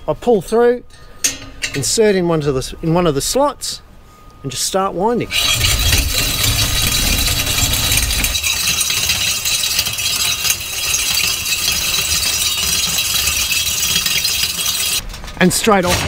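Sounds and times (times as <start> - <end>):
wire winder metallic rattle: 5.3 - 16.0.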